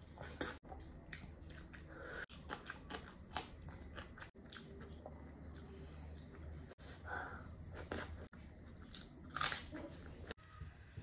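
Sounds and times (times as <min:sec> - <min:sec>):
person chewing food: 0:00.0 - 0:07.0, 0:07.6 - 0:10.4.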